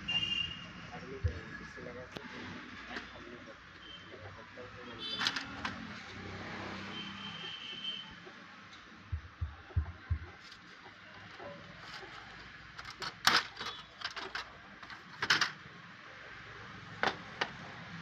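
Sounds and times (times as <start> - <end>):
soft low thumps: 1.2 - 1.6, 9.1 - 10.4.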